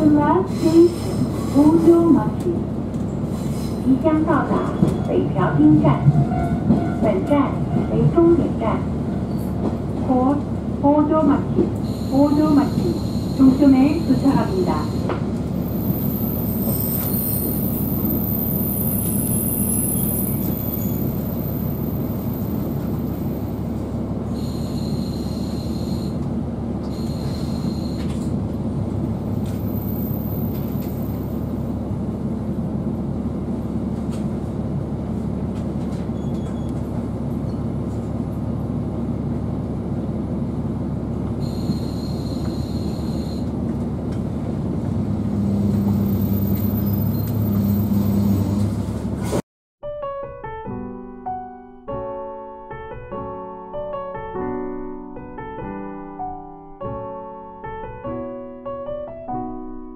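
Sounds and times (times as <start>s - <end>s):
railcar engine and wheels rumbling: 0.0s - 49.4s
high wheel squeals: 11.8s - 22.6s, 24.3s - 26.2s, 26.8s - 28.3s, 41.4s - 43.6s, 45.3s - 48.7s.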